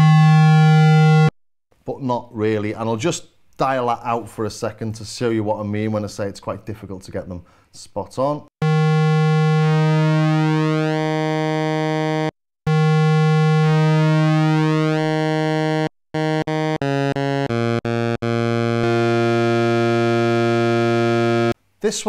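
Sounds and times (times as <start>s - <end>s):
synthesizer square-wave note: 0.0s - 1.3s, 8.6s - 21.6s
short synthesizer notes stepping down: 8.6s - 21.6s.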